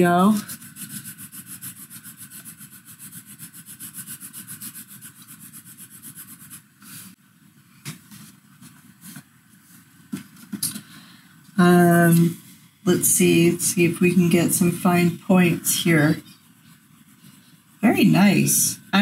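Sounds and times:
pencil shading on paper: 0.2s - 7.1s, 12.9s - 19.0s
light pencil scratches: 0.2s - 7.2s.

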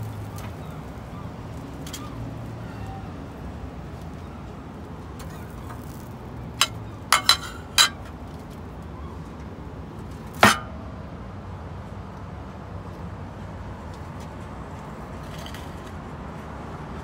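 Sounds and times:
steady background noise: 0.0s - 17.0s
cookware clinking on grill: 6.6s - 8.1s, 10.4s - 10.7s.

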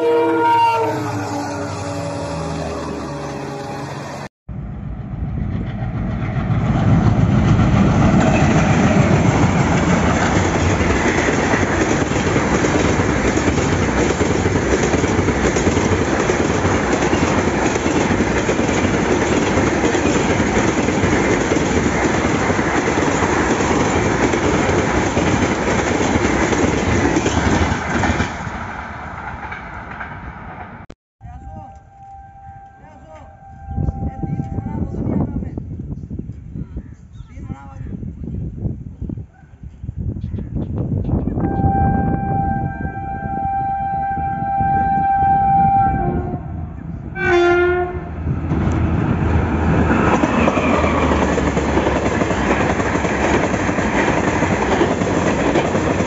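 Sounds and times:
train wheels running over track: 3.8s - 30.8s, 47.2s - 56.0s.

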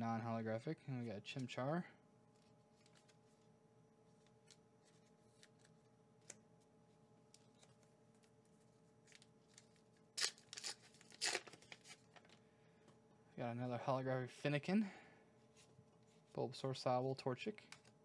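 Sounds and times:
faint hum: 0.0s - 18.0s
plastic pack tearing: 9.0s - 12.2s.

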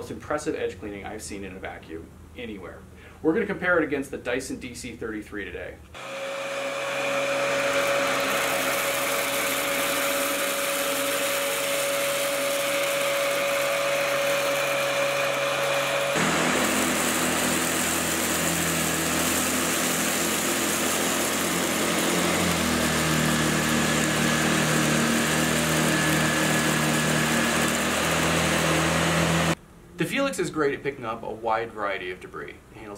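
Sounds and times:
vacuum cleaner running: 6.0s - 29.6s.

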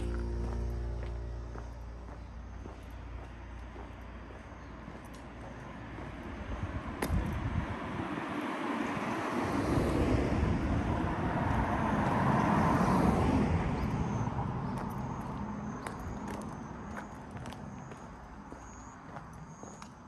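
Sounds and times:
vehicle driving past: 0.0s - 4.7s.

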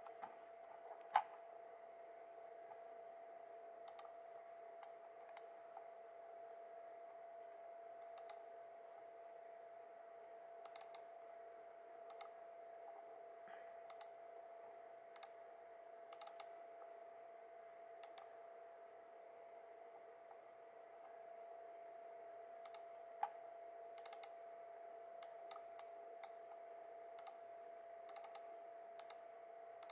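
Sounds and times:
faint electrical hum: 0.0s - 29.9s
computer mouse clicking: 3.8s - 4.2s, 4.8s - 5.9s, 8.0s - 8.4s, 10.6s - 11.1s, 12.1s - 12.4s, 13.9s - 14.2s, 15.1s - 15.4s, 16.1s - 16.5s, 18.0s - 18.3s, 22.6s - 23.4s, 24.0s - 24.4s, 25.2s - 26.4s, 27.2s - 27.4s, 28.1s - 29.2s.

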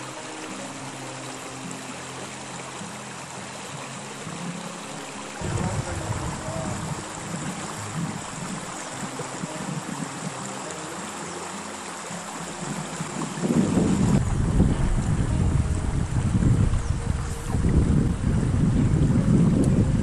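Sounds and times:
river running over stones: 0.0s - 20.0s
wind buffeting microphone: 5.4s - 10.5s, 12.6s - 20.0s.

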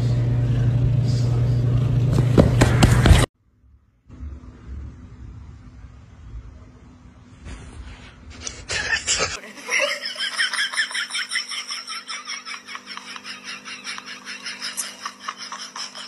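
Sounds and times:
low rumbling noise: 0.0s - 9.2s
person laughing high-pitched: 8.7s - 16.0s.

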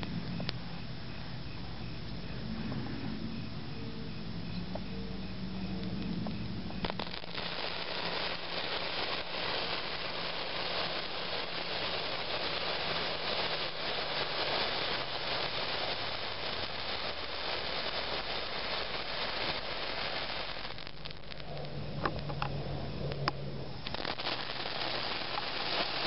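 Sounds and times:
sparkler hissing and crackling: 6.8s - 22.4s, 23.0s - 26.0s.

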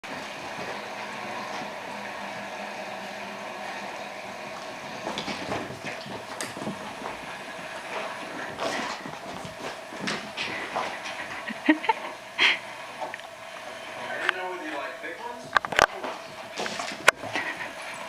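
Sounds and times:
household hum: 0.0s - 18.0s
dog paws tapping and scuffling: 0.1s - 1.8s, 4.5s - 12.2s, 13.0s - 18.0s.

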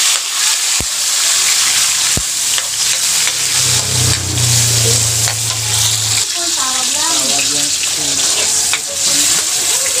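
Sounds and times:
vegetables sizzling in hot oil: 0.0s - 10.0s
metal ladle scraping a wok: 2.6s - 6.4s
low hum: 2.8s - 6.6s.

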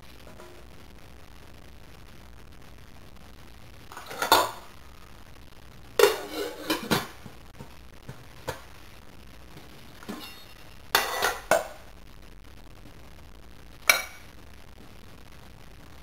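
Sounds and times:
pot lid clanking on saucepan: 6.0s - 7.2s, 11.0s - 11.7s, 13.9s - 14.2s.

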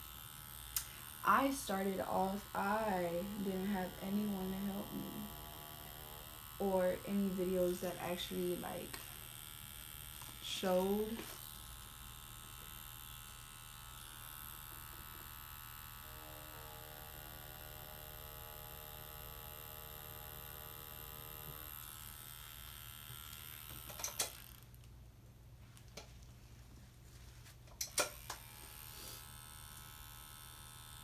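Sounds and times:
tattoo machine buzzing: 0.0s - 24.9s, 27.7s - 31.0s
tattoo machine clicks: 0.0s - 24.9s, 27.7s - 31.0s.

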